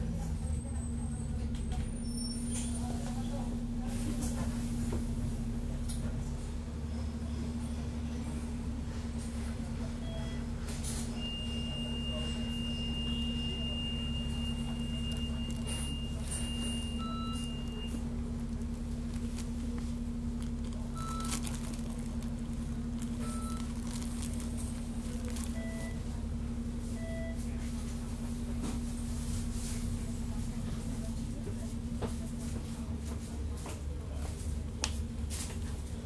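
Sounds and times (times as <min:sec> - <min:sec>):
short beeps: 0:11.2 - 0:18.0, 0:21.0 - 0:21.4, 0:23.2 - 0:23.7, 0:25.5 - 0:26.0, 0:27.0 - 0:27.4.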